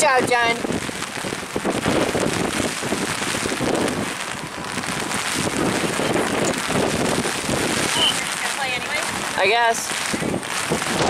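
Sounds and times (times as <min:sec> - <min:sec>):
rain falling: 0:00.0 - 0:11.0
wind noise on microphone: 0:00.0 - 0:11.0.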